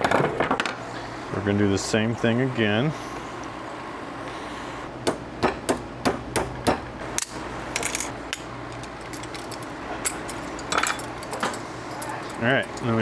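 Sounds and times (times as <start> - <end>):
parts being handled clicking: 7.2 - 13.0.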